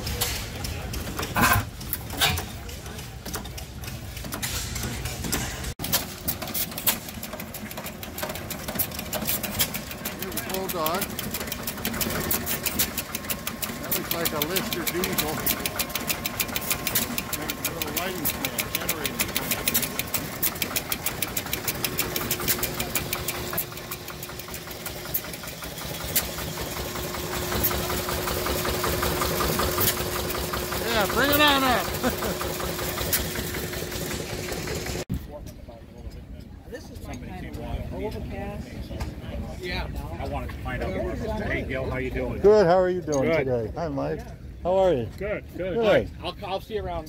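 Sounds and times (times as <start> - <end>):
stationary engine clicking and clatter: 0.0 - 35.2.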